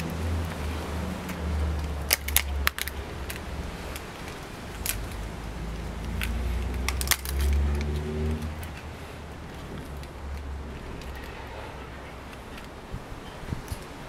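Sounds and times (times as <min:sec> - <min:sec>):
banana leaf crinkling and crackling: 0:00.0 - 0:14.0.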